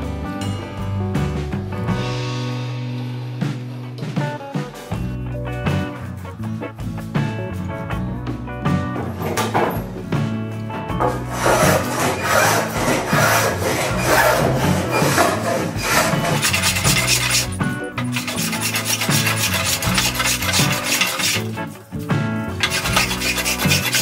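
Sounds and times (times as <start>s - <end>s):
background music: 0.0s - 24.0s
hand plane shaving wood: 11.1s - 21.8s, 22.6s - 24.0s.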